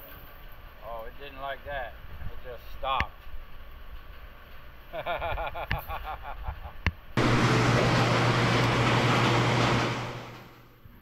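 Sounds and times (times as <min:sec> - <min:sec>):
pump motor humming: 0:07.2 - 0:10.7.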